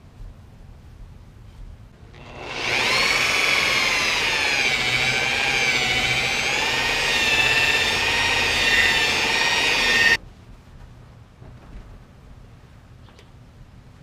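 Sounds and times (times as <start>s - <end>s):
electric polisher motor whine: 2.2s - 10.2s.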